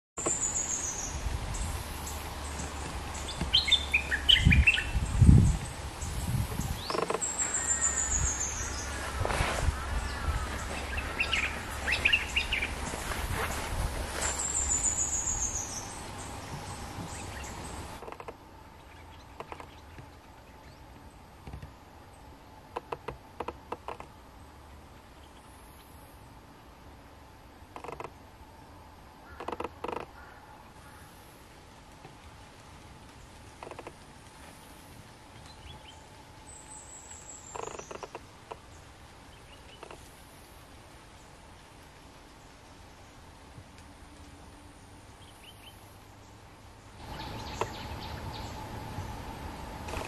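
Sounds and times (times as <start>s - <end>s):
bird chirping: 0.2s - 18.1s, 47.0s - 50.0s.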